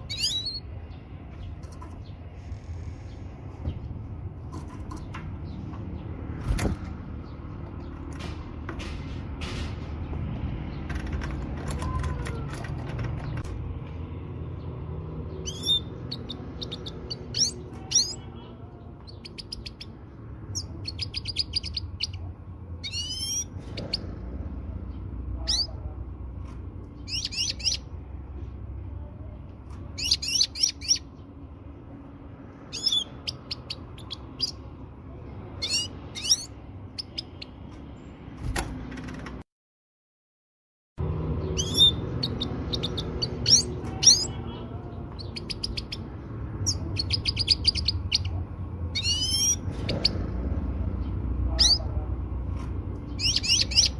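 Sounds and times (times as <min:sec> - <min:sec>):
finch chirping: 0:00.0 - 0:03.9, 0:15.2 - 0:24.1, 0:24.9 - 0:25.8, 0:26.9 - 0:28.0, 0:29.9 - 0:31.3, 0:32.7 - 0:34.8, 0:35.5 - 0:37.6, 0:41.4 - 0:50.3, 0:51.0 - 0:52.0, 0:53.0 - 0:53.9
low background rumble: 0:00.0 - 0:19.3.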